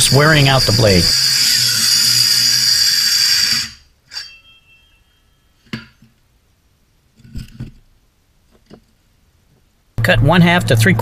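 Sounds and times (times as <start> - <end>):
circular saw high whine: 0.0 - 5.6.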